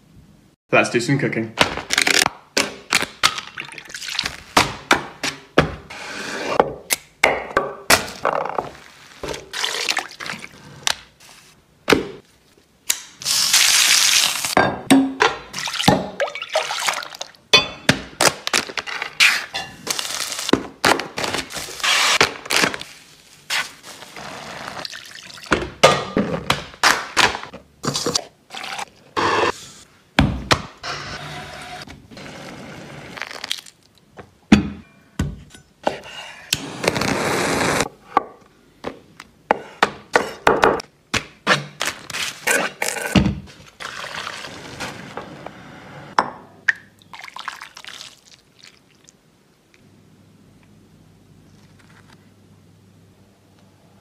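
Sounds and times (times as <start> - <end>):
liquid pouring: 47.0 - 49.1.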